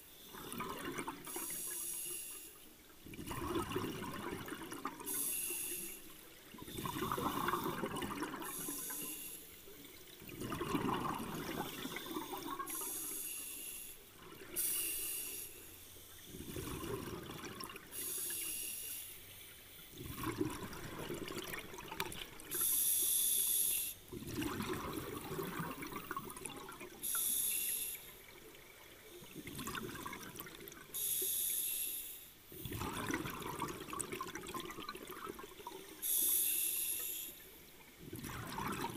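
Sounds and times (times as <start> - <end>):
exhaled bubbles rushing: 0.3 - 1.5, 3.0 - 5.1, 6.4 - 8.6, 10.0 - 12.8, 16.3 - 17.9, 19.9 - 22.5, 24.1 - 27.0, 28.2 - 30.9, 32.6 - 35.8, 37.9 - 38.9
regulator hiss on inhale: 1.3 - 2.6, 5.1 - 7.8, 8.4 - 9.7, 11.7 - 16.4, 17.9 - 19.9, 22.5 - 24.0, 27.0 - 28.2, 31.0 - 32.4, 36.0 - 37.6.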